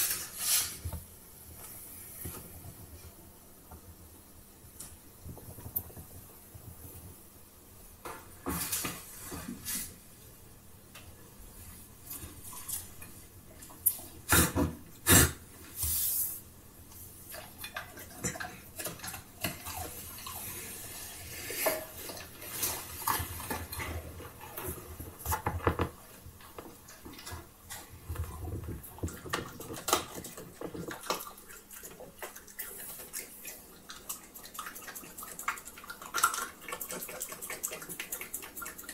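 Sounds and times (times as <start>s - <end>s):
dog licking and eating: 26.7s - 38.9s.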